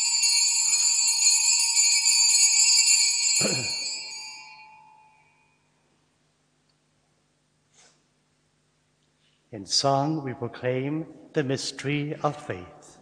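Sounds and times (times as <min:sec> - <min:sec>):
altar bells ringing: 0:00.0 - 0:05.8.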